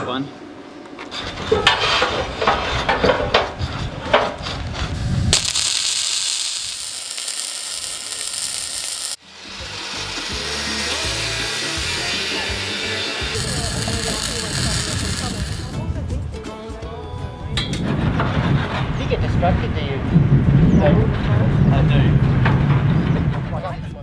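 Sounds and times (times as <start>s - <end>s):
arc welding crackling hiss: 5.3s - 15.9s
background music: 9.2s - 18.1s.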